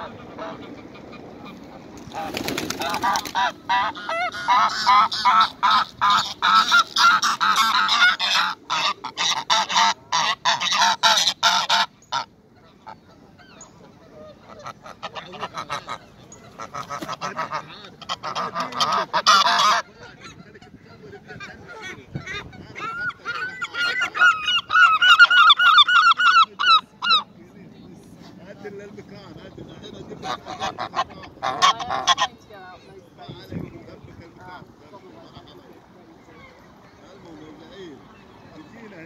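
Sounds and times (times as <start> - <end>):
geese honking: 0.0 - 27.4, 29.9 - 32.6.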